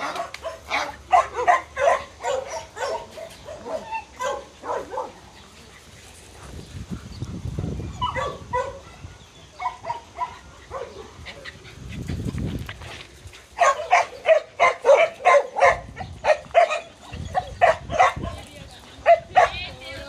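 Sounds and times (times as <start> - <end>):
small dogs barking: 0.0 - 5.4, 7.6 - 11.4, 13.5 - 19.8.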